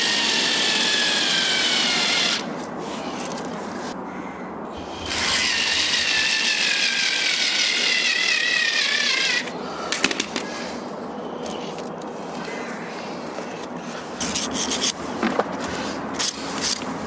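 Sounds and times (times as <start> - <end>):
power drill whining: 0.0 - 2.5, 4.8 - 9.5.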